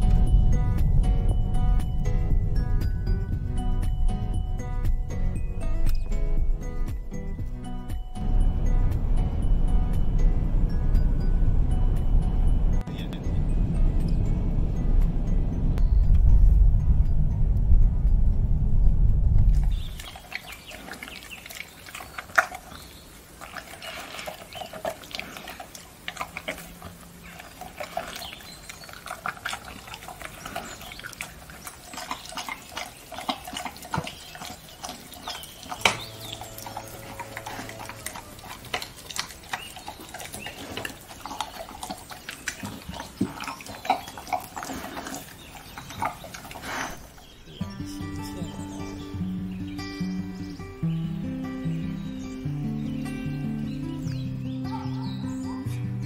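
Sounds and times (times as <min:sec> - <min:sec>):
dog lapping and chewing: 0:19.5 - 0:47.3.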